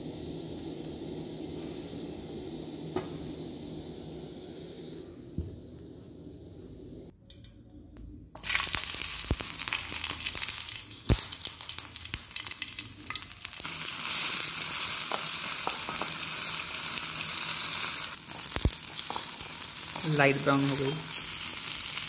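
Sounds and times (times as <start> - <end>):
onions sizzling in oil: 8.4 - 22.0.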